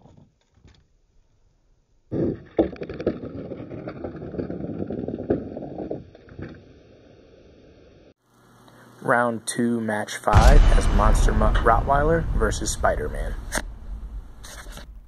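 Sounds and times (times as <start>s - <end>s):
toy trucks rolling: 2.2s - 6.6s.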